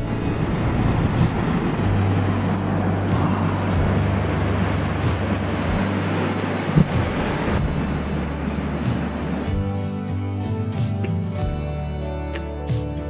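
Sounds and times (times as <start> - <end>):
river rushing over rocks: 0.0 - 9.6.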